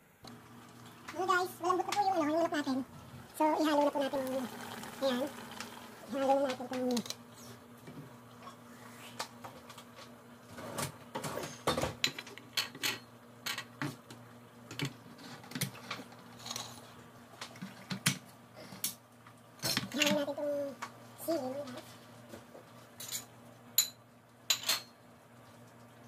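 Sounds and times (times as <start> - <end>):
pots and utensils clinking: 10.6 - 13.9, 23.0 - 25.0.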